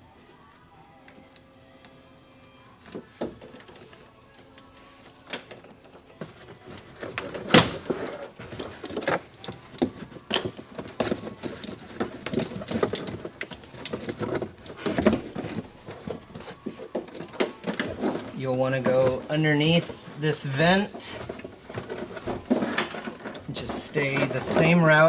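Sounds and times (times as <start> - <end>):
carpet rustling and scraping: 6.1 - 25.0.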